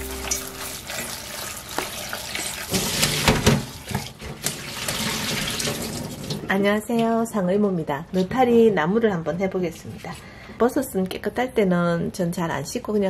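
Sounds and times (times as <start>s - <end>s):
tap water splashing in sink: 0.3s - 6.4s.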